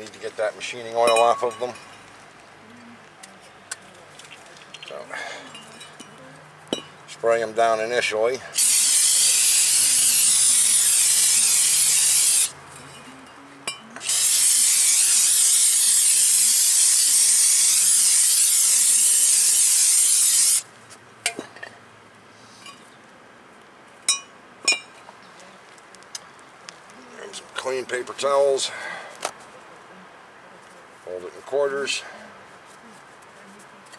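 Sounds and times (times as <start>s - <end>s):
aerosol spray hissing: 8.6s - 12.5s, 14.0s - 20.6s.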